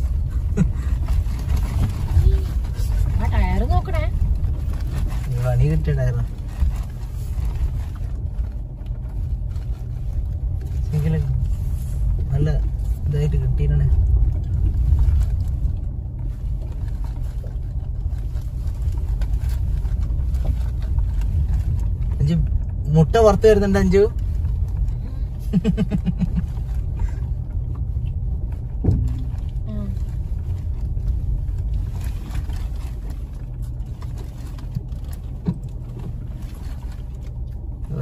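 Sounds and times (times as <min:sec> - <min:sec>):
engine and tyres rumbling: 0:00.0 - 0:38.0
car knocking over bumps: 0:25.4 - 0:31.8, 0:34.7 - 0:36.4.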